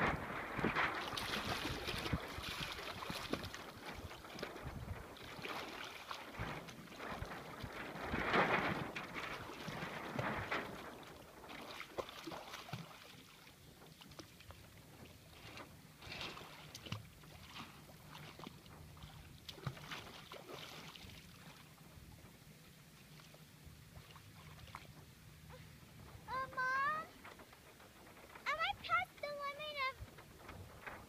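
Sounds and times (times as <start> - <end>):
water splashing against boat hull: 0.0 - 22.4.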